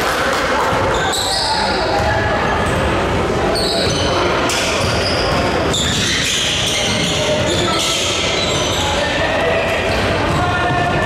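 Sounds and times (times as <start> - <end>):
voices in a hall: 0.0 - 11.0
shoe squeaks: 0.9 - 2.0, 3.5 - 9.4.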